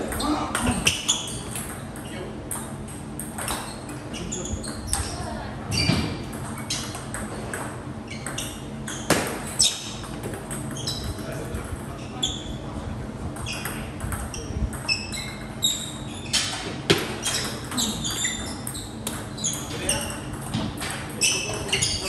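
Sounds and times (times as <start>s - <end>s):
table tennis balls clicking: 6.2s - 11.6s.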